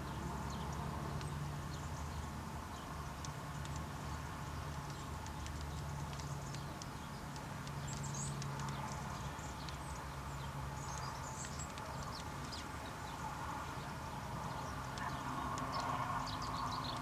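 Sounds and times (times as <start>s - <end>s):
small birds chirping: 0.0s - 17.0s
bird pecking ticks and taps: 3.0s - 13.2s, 14.5s - 17.0s.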